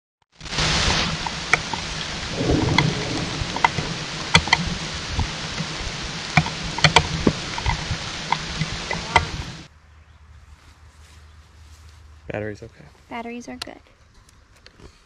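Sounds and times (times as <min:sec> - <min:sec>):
raindrops ticking on camera: 0:00.3 - 0:09.7
steady rain: 0:00.3 - 0:09.7.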